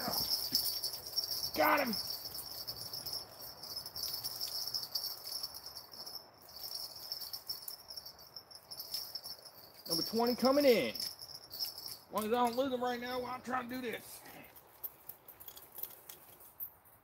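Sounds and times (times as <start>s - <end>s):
night insects chirring: 0.0s - 12.1s.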